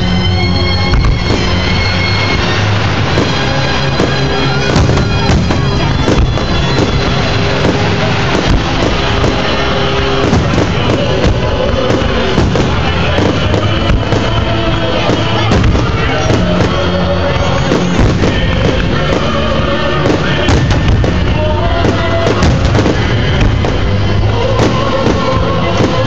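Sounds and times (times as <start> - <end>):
fireworks bursting: 0.0 - 26.0
music: 0.0 - 26.0.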